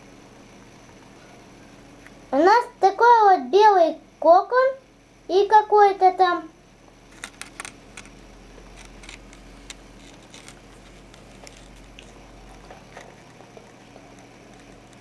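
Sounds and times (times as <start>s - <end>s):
steady low hum: 0.0s - 15.0s
camera handling clicks and rustles: 7.1s - 8.2s, 8.8s - 12.2s.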